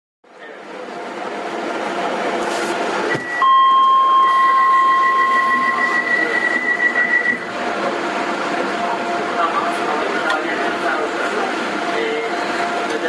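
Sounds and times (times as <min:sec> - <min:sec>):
train station rumble: 0:00.3 - 0:13.0
high-pitched electronic tones: 0:03.1 - 0:07.5.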